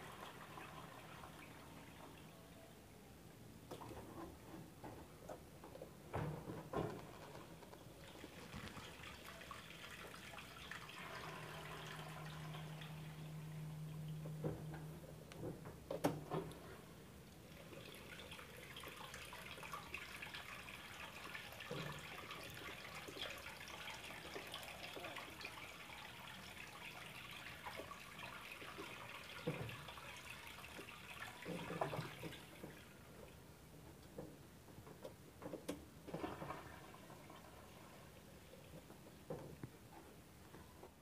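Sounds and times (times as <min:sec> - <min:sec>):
water draining onto floor: 0:06.1 - 0:14.6, 0:17.2 - 0:33.3.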